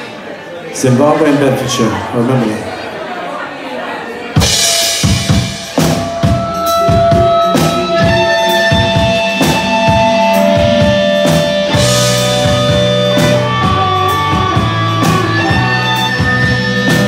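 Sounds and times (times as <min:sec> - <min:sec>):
rock band drums: 0:04.3 - 0:17.0
sustained electric guitar notes: 0:04.4 - 0:17.0.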